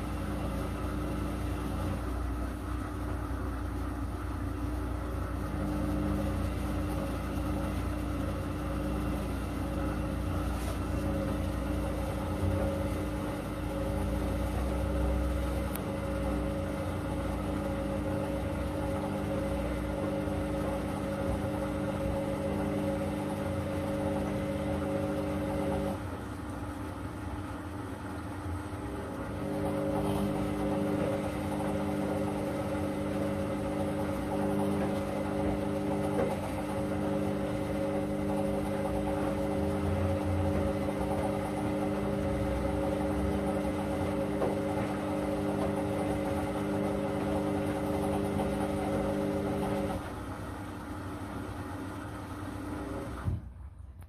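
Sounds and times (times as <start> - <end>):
washing machine drum tumbling: 29.2 - 49.9.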